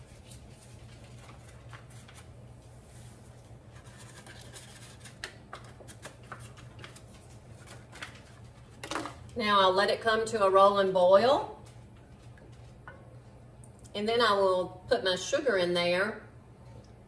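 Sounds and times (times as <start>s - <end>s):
steady low hum: 0.0s - 17.0s
paper packet rustling: 0.1s - 8.8s.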